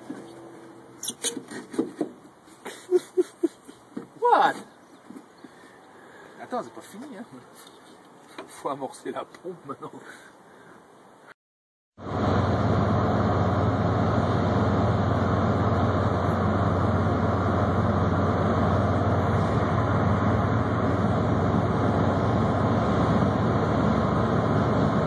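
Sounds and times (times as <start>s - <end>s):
road noise: 0.0s - 11.3s, 12.0s - 25.0s
car engine low drone: 12.0s - 25.0s.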